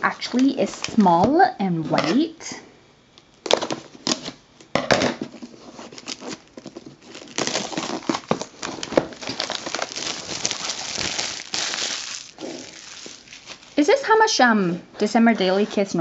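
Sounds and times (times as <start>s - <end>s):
packaging and paper crinkling: 0.0s - 1.2s, 3.4s - 4.4s, 5.2s - 13.8s.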